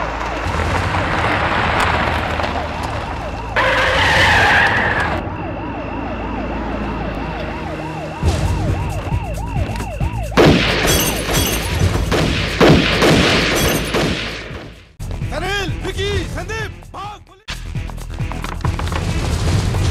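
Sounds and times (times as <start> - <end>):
police siren wailing: 0.0 - 11.8
car noise: 0.0 - 14.9
tyres screeching: 2.6 - 5.4.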